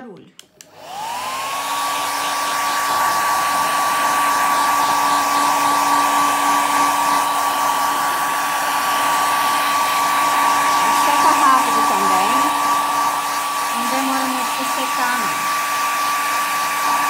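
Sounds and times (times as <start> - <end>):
hair dryer running: 0.6 - 17.0.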